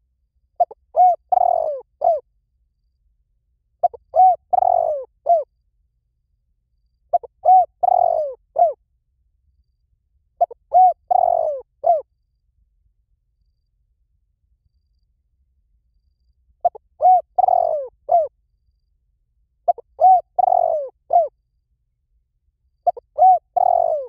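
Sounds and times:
dove cooing: 0.6s - 2.2s, 3.8s - 5.5s, 7.1s - 8.8s, 10.4s - 12.1s, 16.6s - 18.3s, 19.7s - 21.3s, 22.8s - 24.0s.

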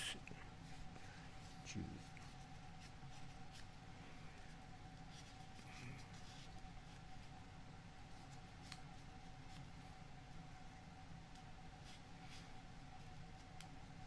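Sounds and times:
faint hum: 0.0s - 14.0s.

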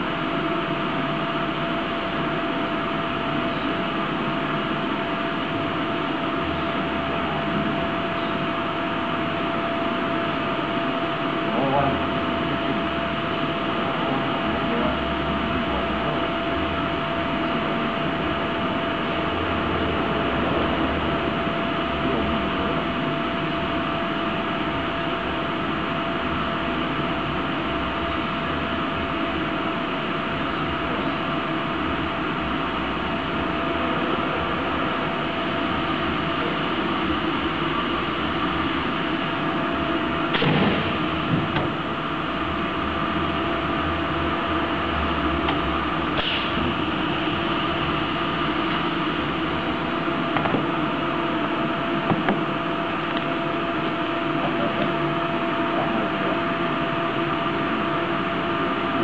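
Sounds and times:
machine hum and fan noise: 0.0s - 59.0s
welding machine whine: 0.0s - 59.0s
loud burst of noise: 32.0s - 56.4s.

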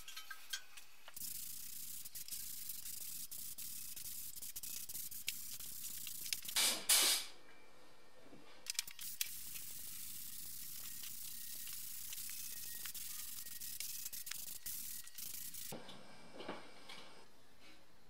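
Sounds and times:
spray gun hissing: 1.2s - 7.3s, 9.0s - 15.7s.

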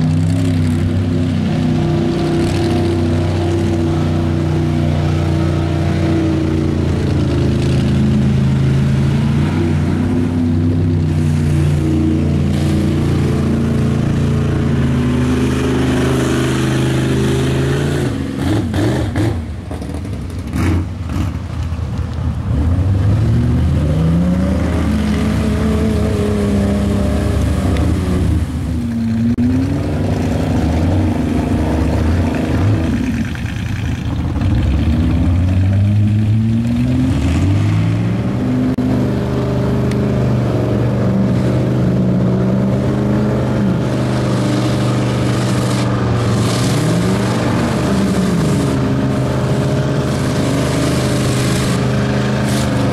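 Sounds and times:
engine revving hard: 0.0s - 19.5s, 34.3s - 52.9s.

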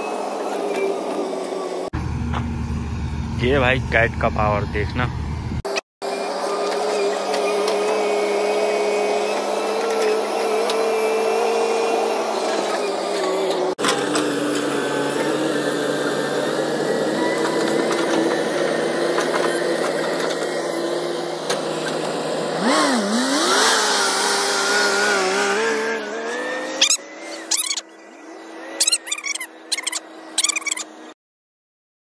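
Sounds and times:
diesel engines running: 0.0s - 31.2s
short sharp chirps: 28.8s - 30.9s.

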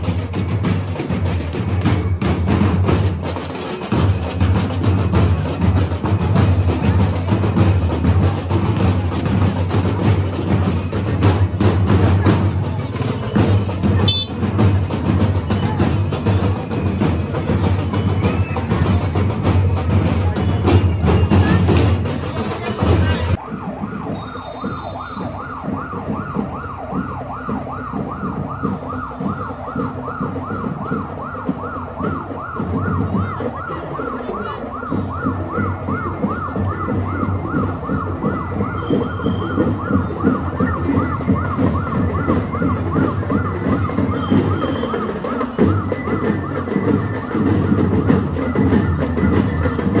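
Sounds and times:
marching band with heavy drums: 0.0s - 50.0s
electronic siren yelping: 23.4s - 47.3s.

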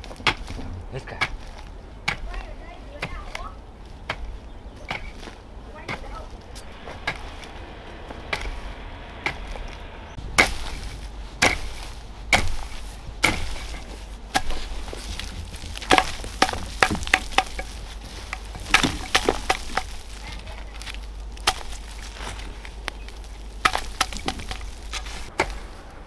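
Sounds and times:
chopping strokes: 5.9s - 20.2s, 20.9s - 22.4s.

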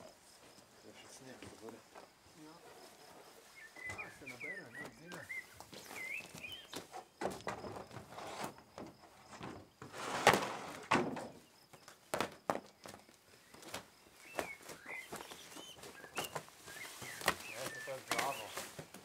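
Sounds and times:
bird chirping: 2.4s - 7.2s, 12.7s - 18.9s
boards knocking and scuffing: 3.0s - 19.0s
footsteps on gravel: 3.6s - 6.9s, 13.8s - 19.0s.

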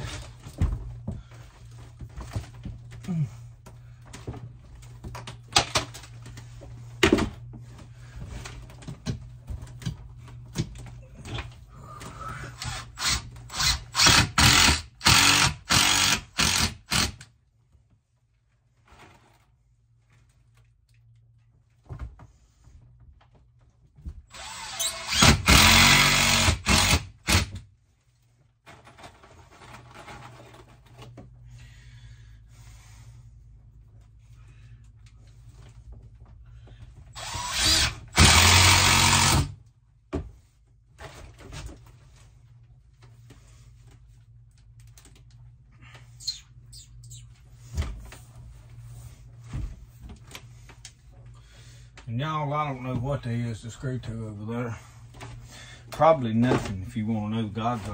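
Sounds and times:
power drill driving screws: 12.6s - 17.2s, 24.3s - 27.5s, 37.1s - 39.6s.

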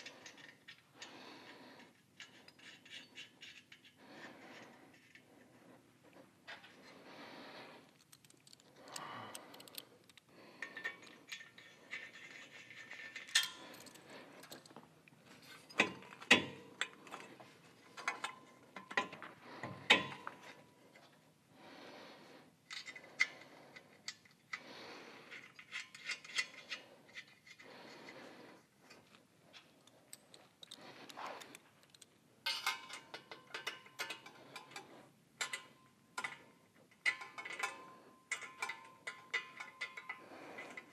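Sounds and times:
metallic clinks and rattles: 7.9s - 14.8s, 29.6s - 40.9s.

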